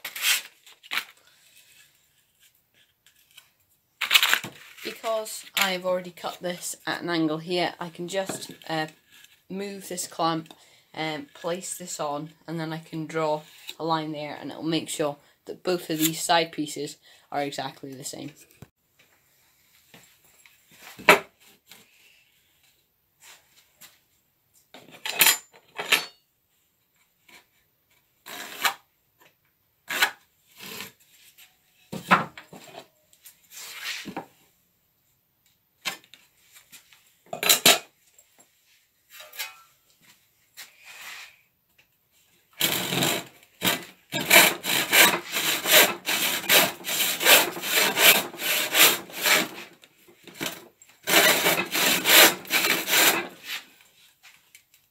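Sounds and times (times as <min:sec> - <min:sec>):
hand saw cutting wood: 0:28.3 - 0:28.8, 0:42.6 - 0:53.7.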